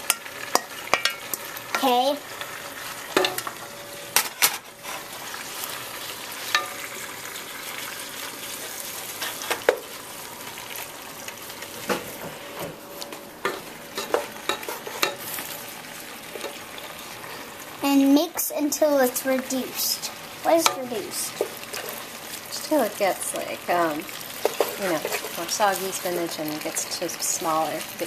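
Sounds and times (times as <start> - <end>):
spinach sizzling in oil: 0.0 - 28.0.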